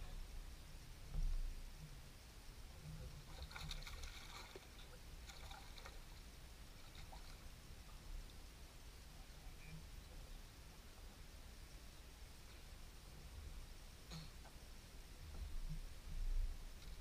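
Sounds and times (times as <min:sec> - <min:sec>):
low steady rumble: 0:00.0 - 0:17.0
fish splashing at water surface: 0:03.3 - 0:06.1.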